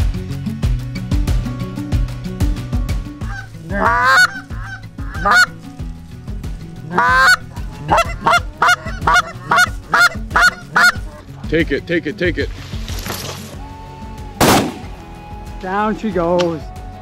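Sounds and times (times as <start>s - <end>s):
goose call honks: 3.2s - 5.6s, 6.9s - 11.2s
goose call short clucks: 3.3s - 5.5s, 6.9s - 11.1s.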